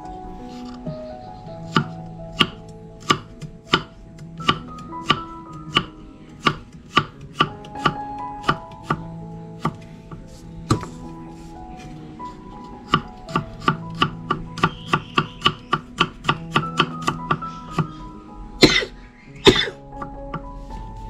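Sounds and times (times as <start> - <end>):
knife chopping on wooden board: 1.7 - 9.0.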